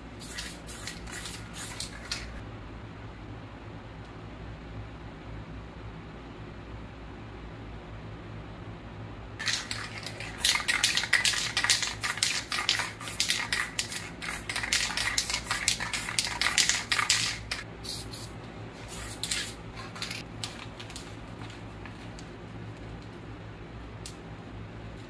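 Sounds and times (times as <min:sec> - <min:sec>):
spray can hissing bursts: 0:00.2 - 0:02.4, 0:09.4 - 0:20.2.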